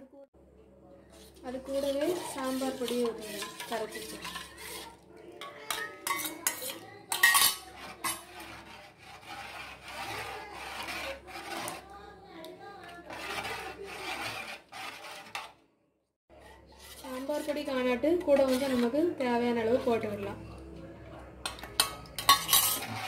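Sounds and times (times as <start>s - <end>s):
ladle stirring and scraping: 1.0s - 15.6s, 16.3s - 23.0s
metal clinking against pot: 1.9s - 8.3s, 21.4s - 23.0s.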